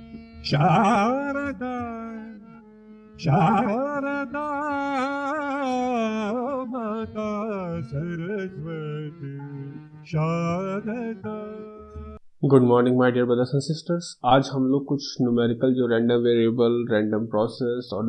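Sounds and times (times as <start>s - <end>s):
indian classical-style melody: 0.0s - 12.2s.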